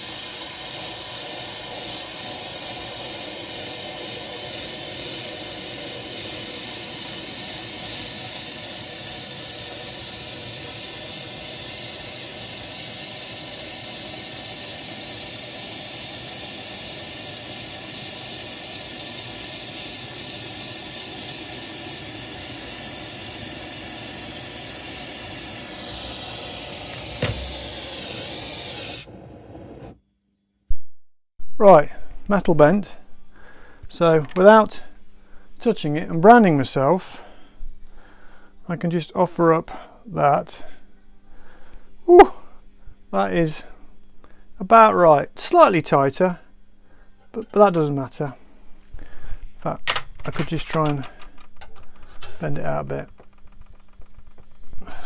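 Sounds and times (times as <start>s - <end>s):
torch flame hissing: 0.0s - 30.0s.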